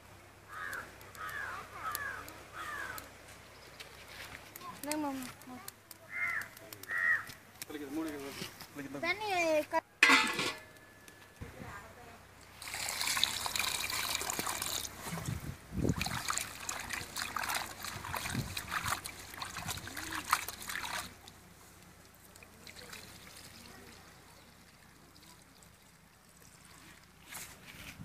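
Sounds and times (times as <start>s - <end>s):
water pouring into steel bowl: 12.5s - 15.1s, 15.9s - 21.2s, 22.4s - 27.2s
water splashing and sloshing: 12.5s - 28.0s.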